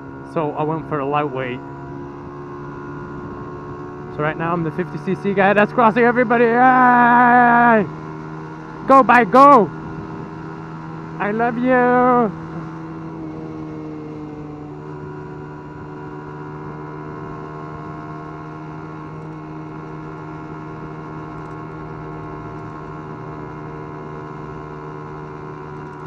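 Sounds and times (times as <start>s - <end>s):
minibike engine droning: 0.0s - 26.0s.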